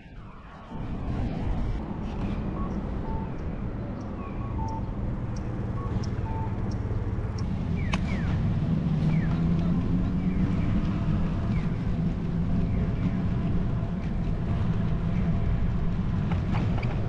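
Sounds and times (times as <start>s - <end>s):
wind noise on microphone: 0.0s - 4.2s
road traffic rumble: 0.0s - 17.0s.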